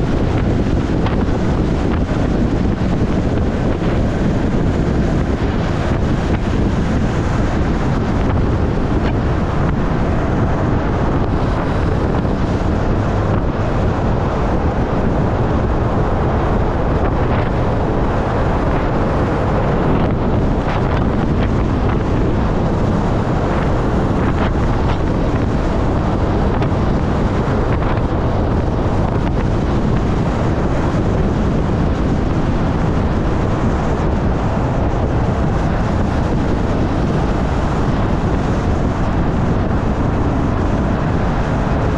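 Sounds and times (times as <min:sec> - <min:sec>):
wind rushing over microphone: 0:00.0 - 0:41.9.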